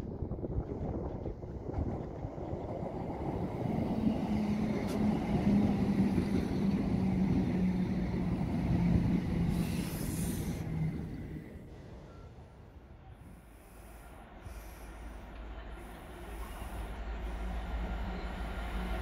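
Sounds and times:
diesel train passing: 0.0s - 19.0s
high hiss of air: 9.5s - 10.7s.

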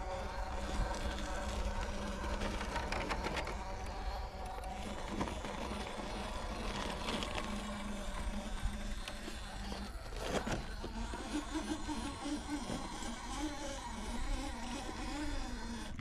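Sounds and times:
electric motor buzzing whine: 0.0s - 16.0s.

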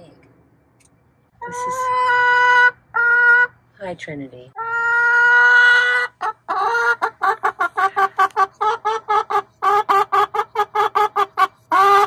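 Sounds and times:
hen clucking: 1.4s - 3.6s, 4.6s - 12.0s.

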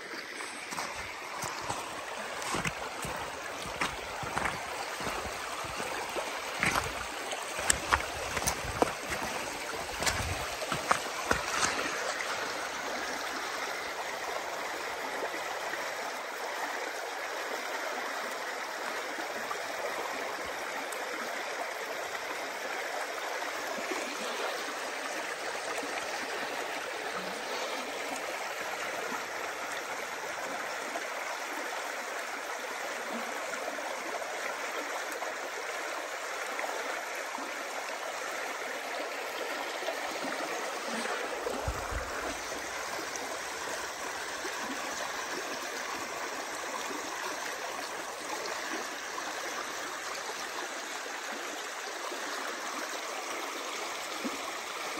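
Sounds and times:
river water rushing over rocks: 0.0s - 16.4s, 32.2s - 54.9s.

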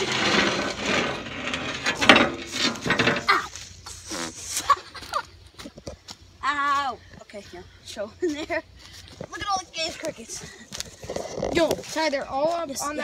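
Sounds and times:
wooden trap door scraping open: 0.0s - 3.4s
knocks and rustles: 0.0s - 3.6s.

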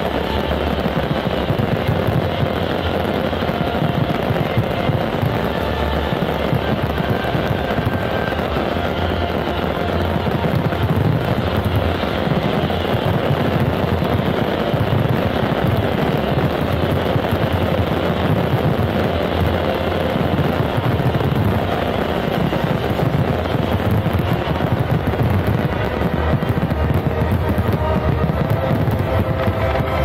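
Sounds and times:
fireworks bursting and crackling: 0.0s - 30.0s
music: 0.0s - 30.0s.

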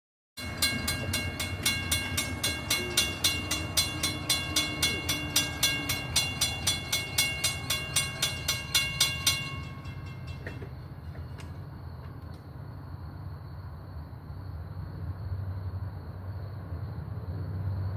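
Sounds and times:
railroad crossing bell ringing: 0.4s - 11.8s.

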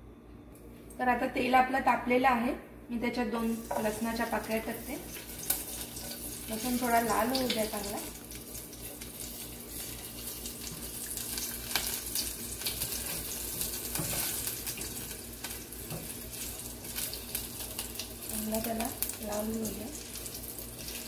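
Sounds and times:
garlic sizzling in hot oil: 3.4s - 21.0s
spatula stirring in saucepan: 3.6s - 17.3s.

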